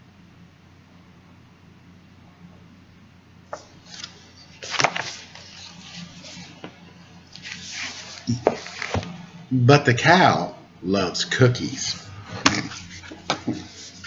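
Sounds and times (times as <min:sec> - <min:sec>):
book pages rustling: 0:03.5 - 0:09.2, 0:12.0 - 0:14.0.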